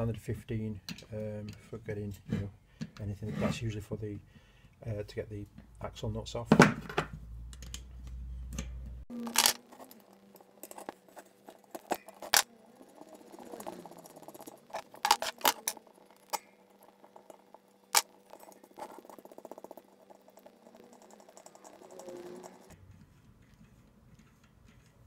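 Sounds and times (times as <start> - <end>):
fast small ticks: 10.1 - 22.8.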